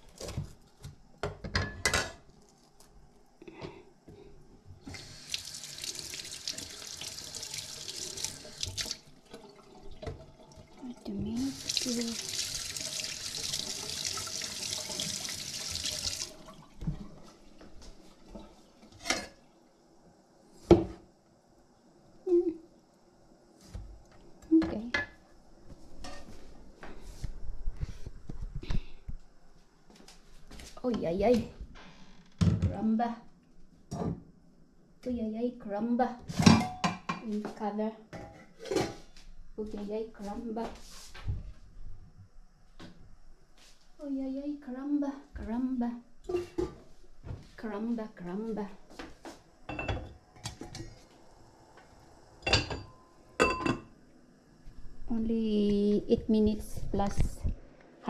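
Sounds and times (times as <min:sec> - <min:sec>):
tap water running: 0:04.8 - 0:19.5.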